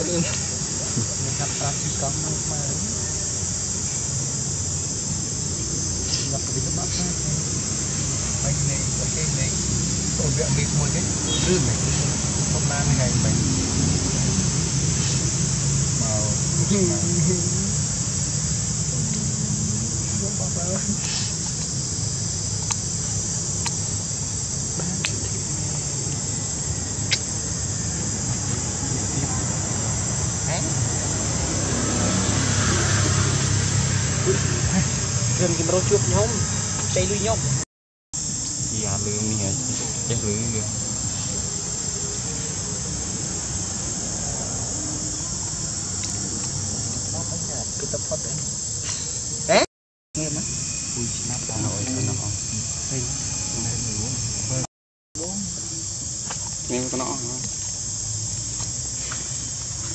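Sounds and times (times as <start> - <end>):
high-pitched insect chorus: 0.0 - 37.6, 38.2 - 59.9
loud rising squeal: 26.3 - 37.6, 50.2 - 54.7.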